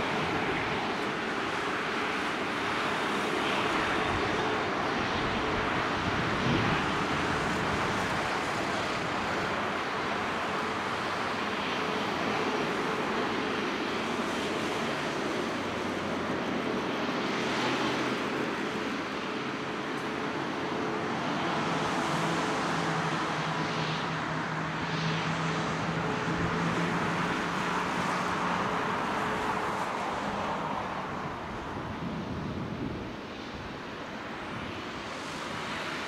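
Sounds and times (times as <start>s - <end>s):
jet engines rushing: 0.0s - 36.0s.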